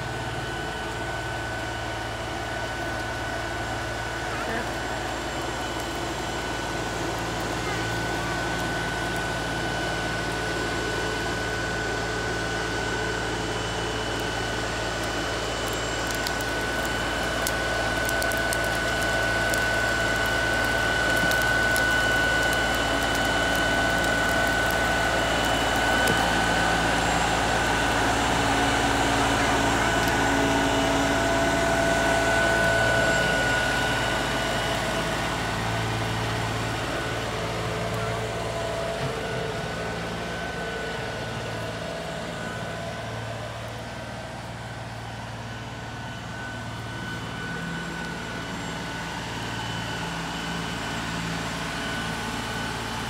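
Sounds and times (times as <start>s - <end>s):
high whine: 0.0s - 53.0s
tractor diesel engine running: 0.0s - 53.0s
branches crackling: 14.0s - 39.8s.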